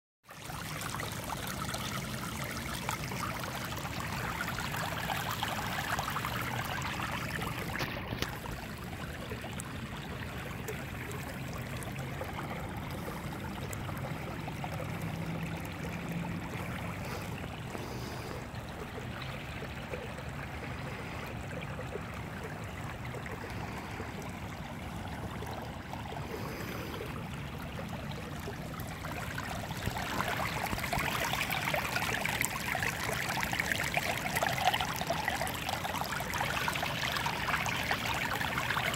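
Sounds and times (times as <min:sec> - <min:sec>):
water rushing over pavement: 0:28.3 - 0:38.9.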